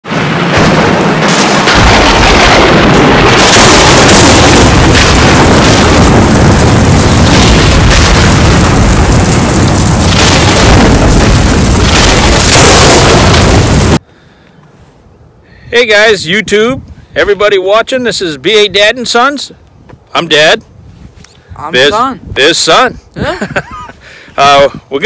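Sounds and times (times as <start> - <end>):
explosion booms: 0.1 - 14.0
rumbling thunder: 0.1 - 14.0.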